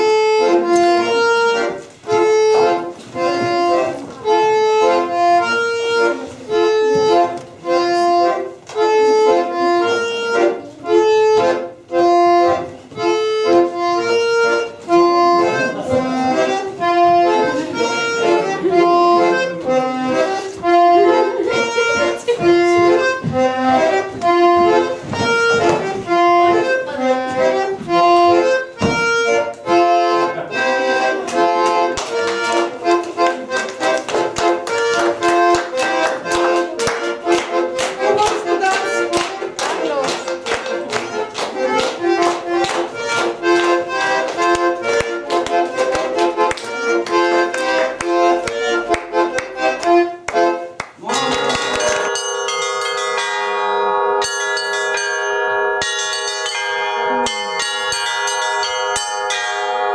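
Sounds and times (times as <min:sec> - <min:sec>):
accordion folk dance tune: 0:00.0 - 0:59.9
people clapping along: 0:31.1 - 0:52.6.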